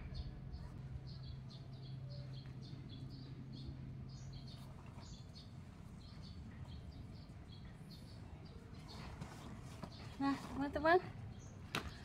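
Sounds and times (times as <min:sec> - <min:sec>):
faint low hum: 0:00.0 - 0:12.0
small birds chirping: 0:00.0 - 0:12.0.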